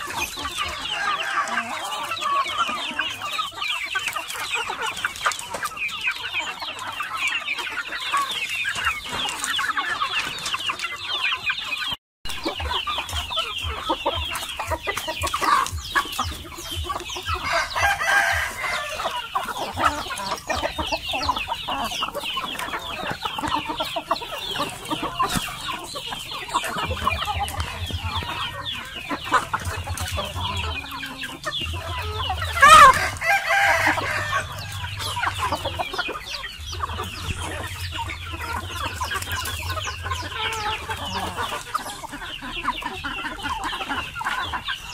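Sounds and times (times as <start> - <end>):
chickens clucking: 0.0 - 44.9
rooster crowing: 0.7 - 2.4, 17.4 - 19.2, 32.6 - 35.2.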